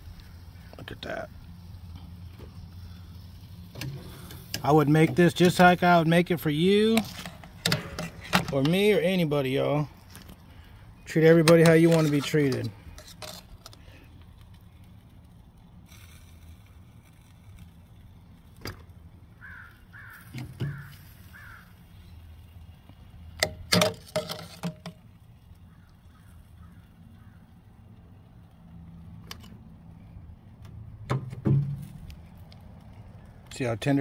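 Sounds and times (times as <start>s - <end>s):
bird calling: 19.4s - 22.2s, 25.6s - 27.6s.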